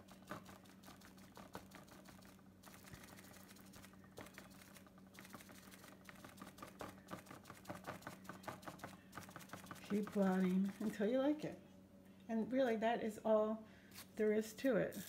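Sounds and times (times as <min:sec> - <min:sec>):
faint low hum: 0:00.0 - 0:15.0
damp sponge patting countertop: 0:06.1 - 0:11.0.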